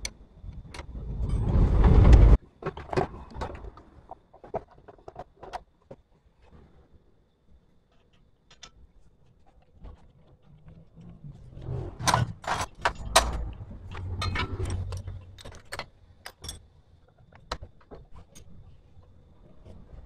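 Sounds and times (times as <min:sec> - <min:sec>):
metal parts and tools clinking: 0:10.8 - 0:18.7.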